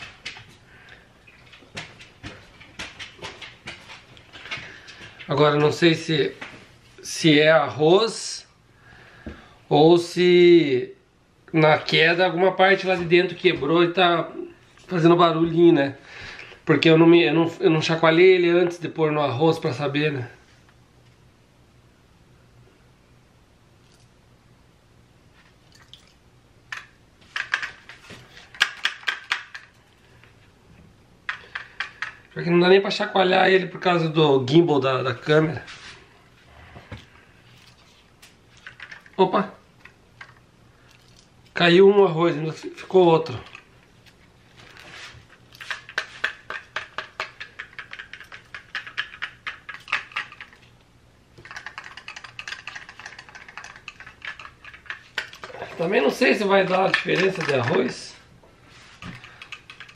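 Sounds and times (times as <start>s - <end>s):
small hard bits rattling in plastic shell: 26.7s - 29.8s, 31.3s - 32.3s, 38.6s - 39.2s, 45.6s - 50.7s, 51.4s - 58.0s, 59.0s - 59.9s
loose parts rattling inside drone: 51.4s - 58.0s.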